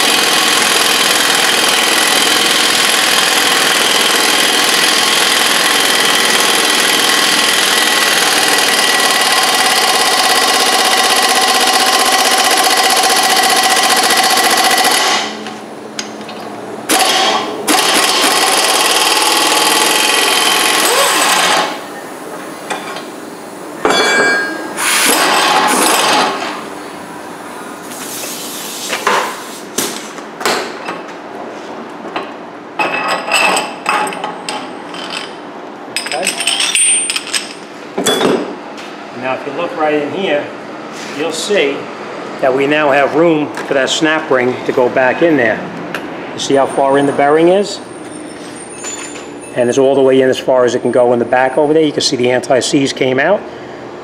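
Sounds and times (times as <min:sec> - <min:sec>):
impact wrench hammering: 0:00.0 - 0:15.4, 0:16.9 - 0:21.8.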